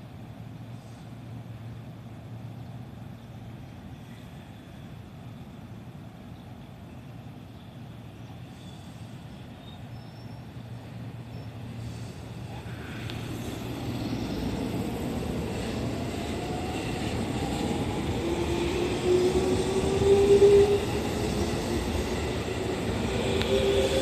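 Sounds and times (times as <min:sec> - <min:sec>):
train wheels rumbling: 0:10.6 - 0:24.0.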